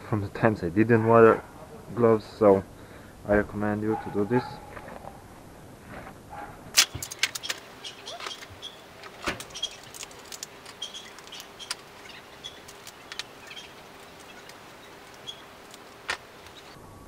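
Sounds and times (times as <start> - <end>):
metal parts and tools clicking: 6.8 - 16.7.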